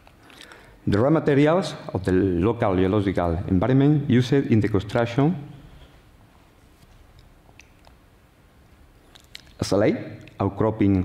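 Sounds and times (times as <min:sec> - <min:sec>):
faint small clicks: 0:07.1 - 0:08.0.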